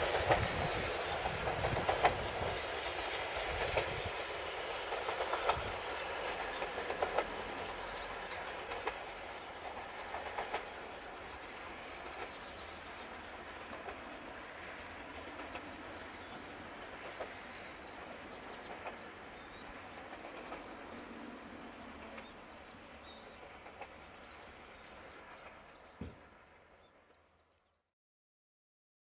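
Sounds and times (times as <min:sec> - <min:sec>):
distant steam train rumbling: 0:00.0 - 0:27.6
small birds chirping: 0:04.6 - 0:27.8.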